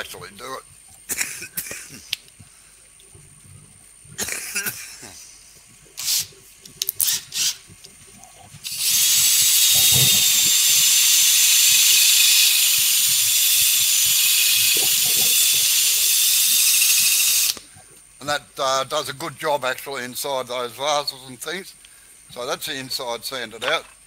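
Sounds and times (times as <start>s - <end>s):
flap sander sanding wood: 8.8s - 17.4s.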